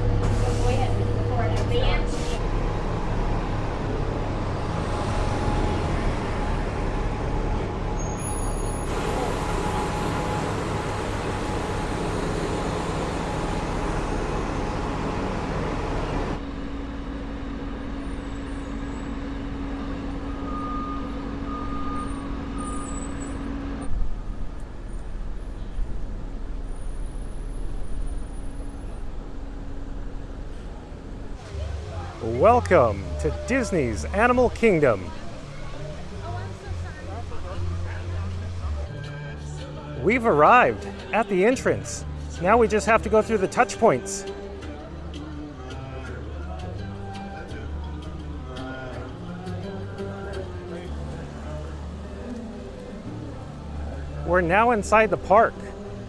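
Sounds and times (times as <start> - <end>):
bus engine and road noise: 0.0 - 56.0
bus station hum: 0.0 - 56.0.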